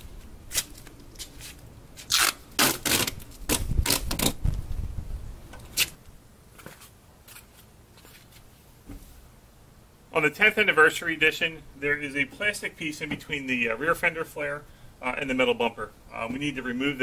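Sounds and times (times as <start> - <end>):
masking tape ripping and scraping: 0.5 - 4.6, 5.7 - 6.0.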